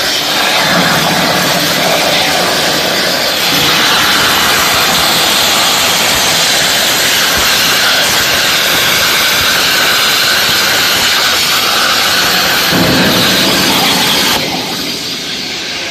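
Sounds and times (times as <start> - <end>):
plasma torch hissing: 0.0 - 15.9.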